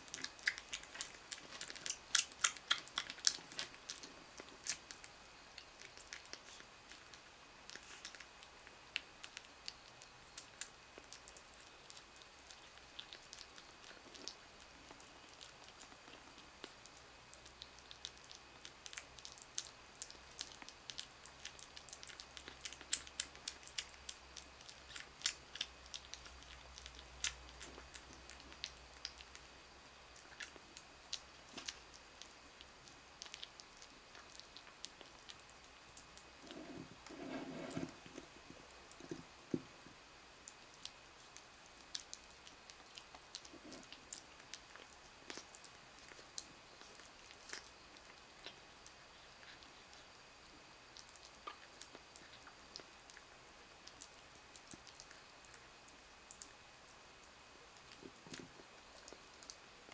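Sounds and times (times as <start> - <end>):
kitten lapping and chewing: 0.0 - 59.9.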